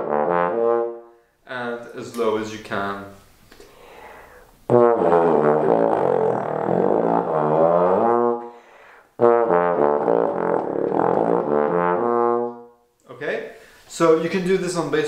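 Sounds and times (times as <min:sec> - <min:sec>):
bass trombone playing low notes: 0:00.0 - 0:01.0, 0:04.7 - 0:08.5, 0:09.2 - 0:12.7.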